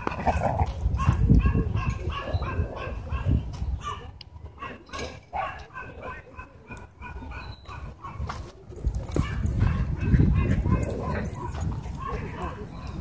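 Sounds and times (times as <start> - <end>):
dogs barking and yipping: 0.0 - 13.0.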